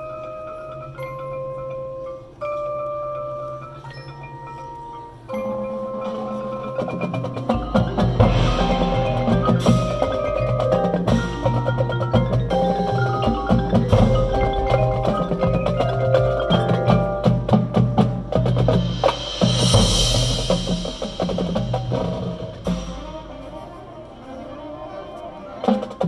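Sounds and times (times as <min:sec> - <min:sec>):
marimbas and mallet percussion: 0:00.0 - 0:26.0.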